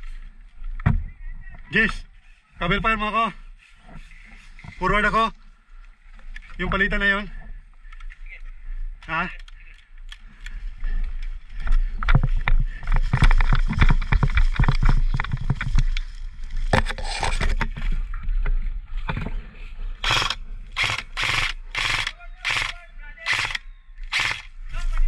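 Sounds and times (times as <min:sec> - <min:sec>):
footsteps in dry grass: 0:10.2 - 0:25.0
gear scraping and knocking: 0:12.0 - 0:18.1, 0:20.0 - 0:23.6
airsoft rifle bursts: 0:20.0 - 0:24.5.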